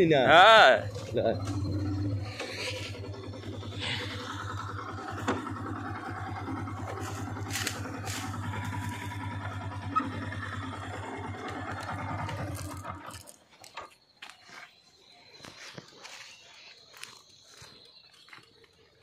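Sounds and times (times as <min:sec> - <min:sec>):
motorcycle engine running: 0:00.0 - 0:13.4.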